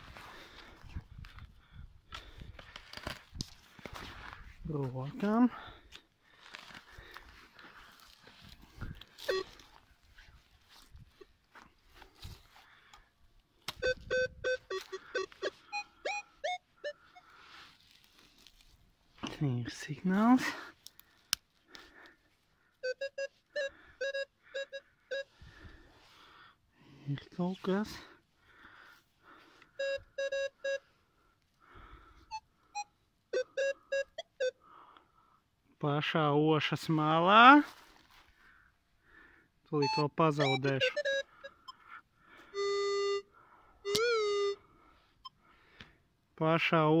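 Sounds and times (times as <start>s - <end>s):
soil rustling in hand: 0.0s - 12.9s, 17.0s - 22.4s
metal detector beeps: 9.2s - 9.6s, 13.7s - 17.2s, 22.8s - 25.3s, 29.8s - 30.8s, 32.3s - 34.6s, 39.8s - 41.8s, 43.8s - 44.6s.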